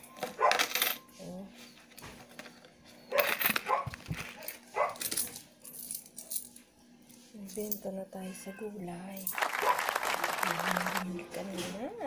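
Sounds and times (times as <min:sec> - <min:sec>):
dog barking: 0:00.4 - 0:00.6, 0:03.1 - 0:05.0, 0:09.6 - 0:09.8.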